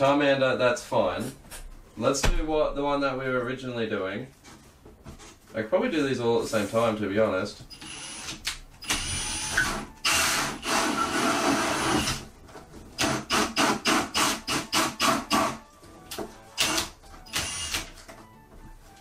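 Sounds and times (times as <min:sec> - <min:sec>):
drill hole saw cutting cardboard: 0:07.8 - 0:12.2, 0:13.0 - 0:15.6, 0:16.6 - 0:17.9.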